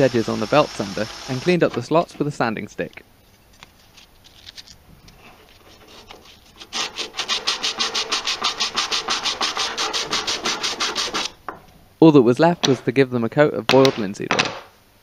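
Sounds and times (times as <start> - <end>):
faint handling sounds: 1.7 - 6.7
sanding stick rubbing wood: 5.2 - 11.3.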